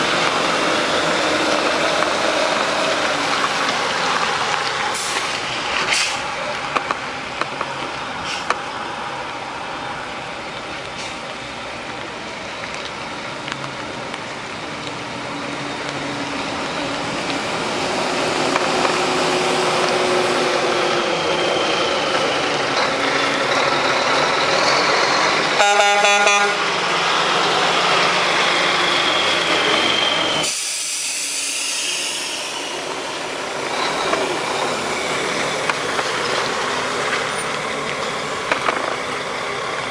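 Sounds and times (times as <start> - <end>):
diesel truck engine driving: 0.0 - 39.9
truck horn: 25.6 - 26.8.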